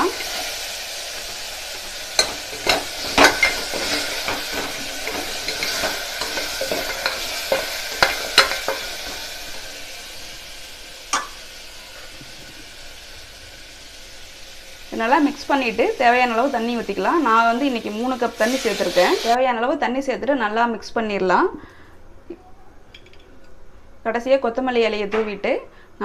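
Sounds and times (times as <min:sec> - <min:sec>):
ladle stirring in pot: 0:00.0 - 0:09.6
mixture sizzling in pot: 0:00.0 - 0:19.4.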